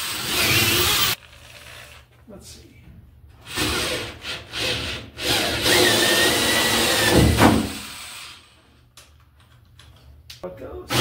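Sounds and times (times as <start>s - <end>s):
power tool cutting wood: 0.0s - 2.0s, 3.5s - 8.5s.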